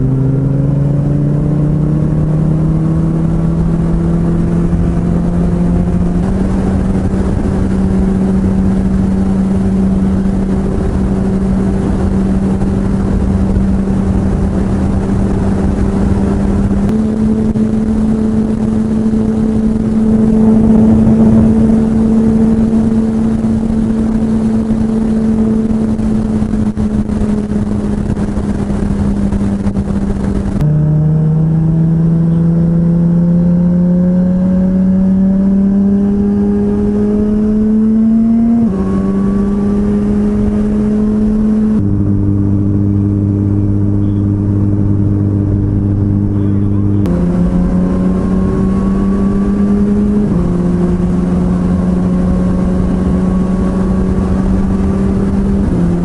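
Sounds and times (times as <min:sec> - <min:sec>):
motorcycle engine revving: 0:00.0 - 0:56.0
wind rush: 0:00.0 - 0:56.0.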